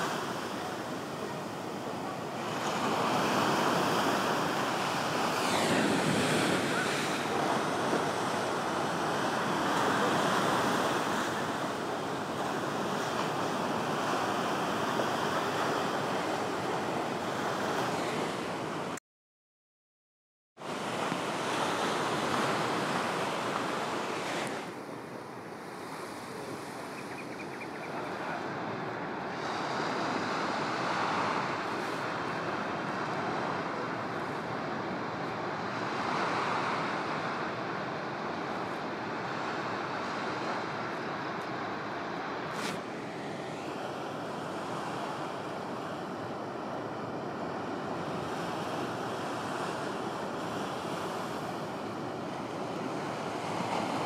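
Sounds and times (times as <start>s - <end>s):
ocean surf breaking: 0.0s - 19.0s, 20.6s - 54.0s
wind rumbling on microphone: 2.4s - 19.0s.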